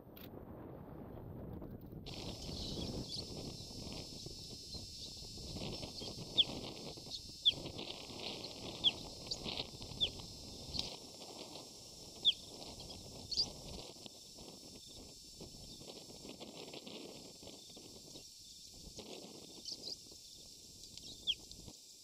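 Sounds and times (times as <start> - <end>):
high-pitched animal chirps: 4.7 - 10.8, 12.2 - 13.6.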